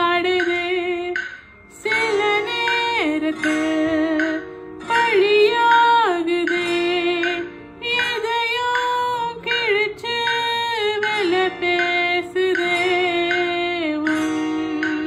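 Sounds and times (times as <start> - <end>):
woman singing slow melody: 0.0 - 15.0.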